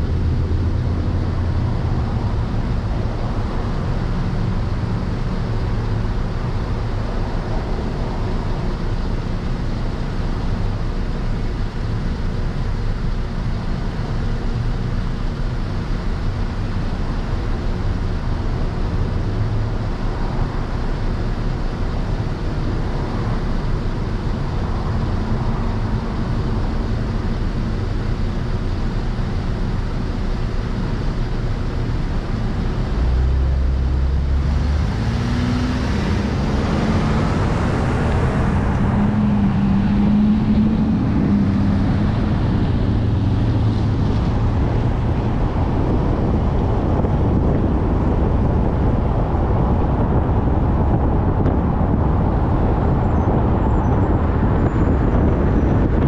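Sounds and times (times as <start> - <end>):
car engine: 0.0 - 56.0.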